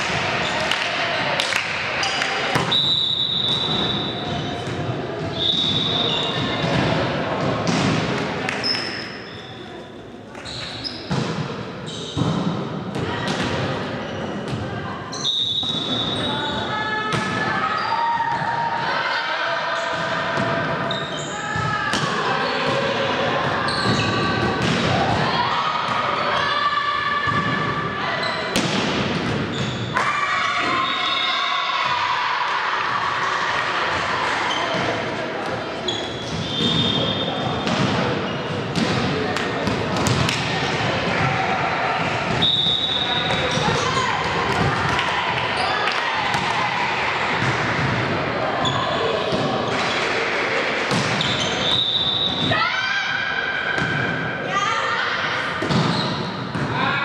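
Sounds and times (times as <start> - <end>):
volleyball hits: 0.0 - 9.1, 28.4 - 30.8, 36.2 - 48.1, 49.2 - 52.6
echoing din of voices: 0.0 - 57.0.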